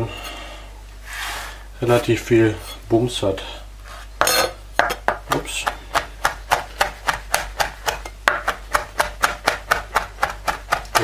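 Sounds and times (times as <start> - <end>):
knife chopping on cutting board: 4.2 - 11.0.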